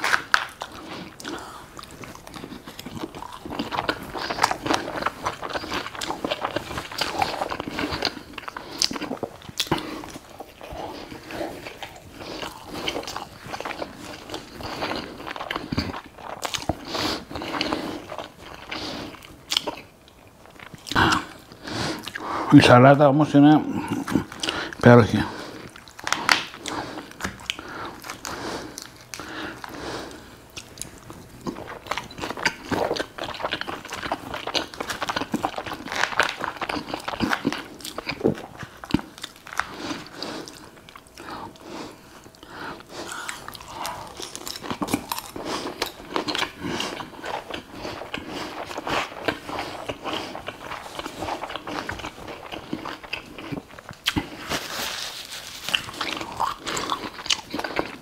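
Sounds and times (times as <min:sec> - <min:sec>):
crunchy bites: 0:00.0 - 0:18.8, 0:43.0 - 0:54.7
wet chewing: 0:00.0 - 0:22.6, 0:23.4 - 0:58.0.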